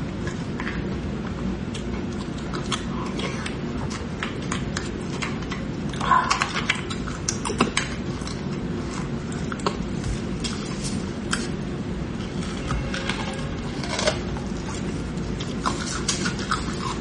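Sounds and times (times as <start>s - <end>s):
metal spoon scraping bone: 12.2s - 17.0s
wet mouth smacking and sucking: 13.8s - 17.0s.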